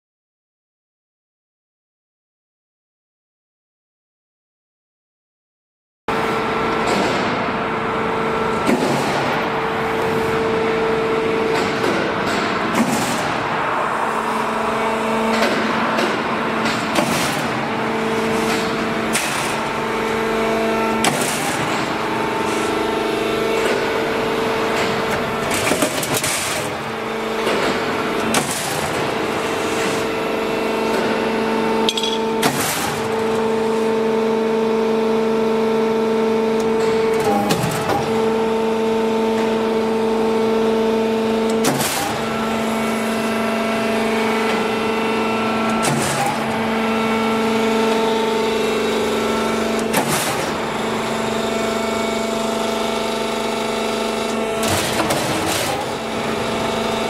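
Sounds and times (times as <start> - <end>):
machine drive hum: 6.1 - 57.0
sharp metal clanks: 31.9 - 32.4.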